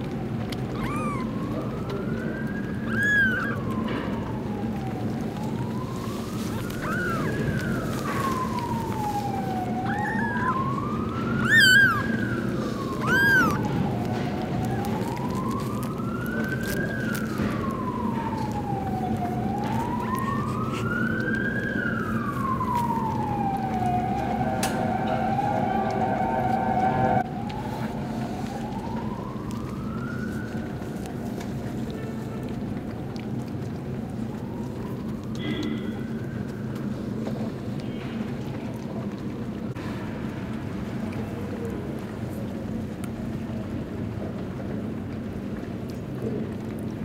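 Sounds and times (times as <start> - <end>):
siren wailing: 0.0 - 31.8, 34.0 - 36.7
kitten mewing: 0.6 - 1.4, 2.8 - 3.8, 6.2 - 10.7, 11.3 - 14.0.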